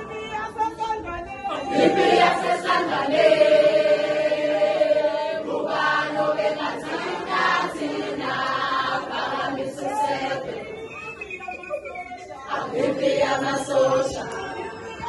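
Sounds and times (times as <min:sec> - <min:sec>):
children singing in chorus: 0:01.7 - 0:10.7, 0:12.5 - 0:14.7.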